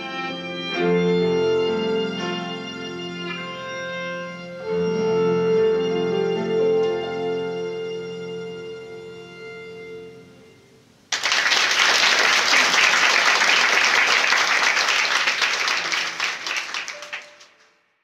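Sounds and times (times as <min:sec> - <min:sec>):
piano and violin chord: 0:00.0 - 0:10.6
audience applause: 0:11.1 - 0:17.7.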